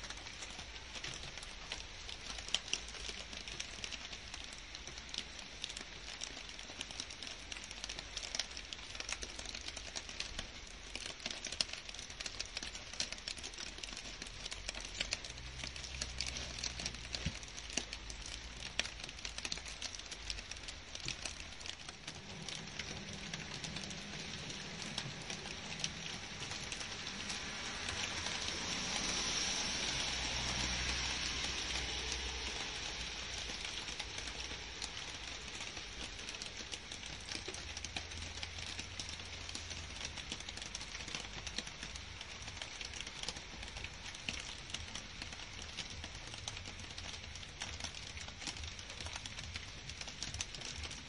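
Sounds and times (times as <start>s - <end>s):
rain falling on leaves and grass: 0.0s - 51.0s.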